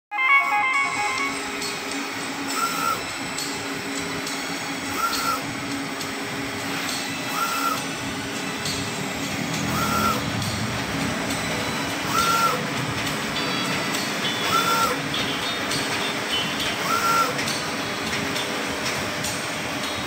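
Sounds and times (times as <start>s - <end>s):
short high beep: 0.1s - 1.7s
printer machine hum: 0.3s - 20.0s.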